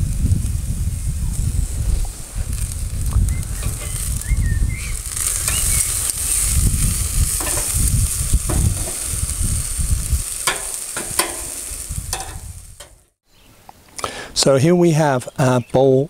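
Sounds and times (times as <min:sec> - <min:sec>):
low rumble: 0:00.0 - 0:10.3
vegetables sizzling on grill: 0:00.1 - 0:13.1
metal tongs clicking on grate: 0:10.4 - 0:13.0.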